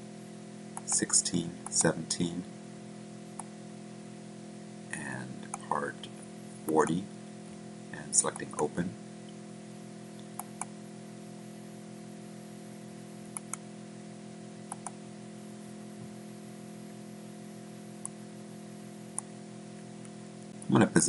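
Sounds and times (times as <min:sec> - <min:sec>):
low electrical hum: 0:00.0 - 0:21.0
computer mouse clicks: 0:00.8 - 0:01.0, 0:10.3 - 0:10.7, 0:13.3 - 0:13.6, 0:14.7 - 0:15.0.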